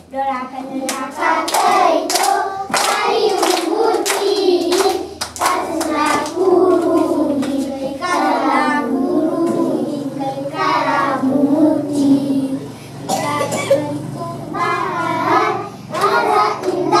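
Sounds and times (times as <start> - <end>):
children singing together: 0.6 - 17.0
children clapping hands: 0.8 - 7.7, 16.0 - 17.0.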